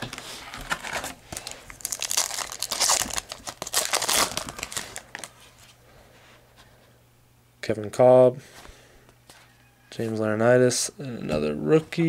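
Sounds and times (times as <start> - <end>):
foil wrapper crinkling and tearing: 0.0 - 5.4.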